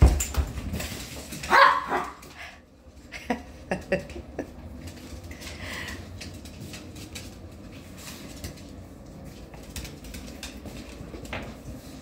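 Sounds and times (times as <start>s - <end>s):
dog barking: 1.5s - 2.2s.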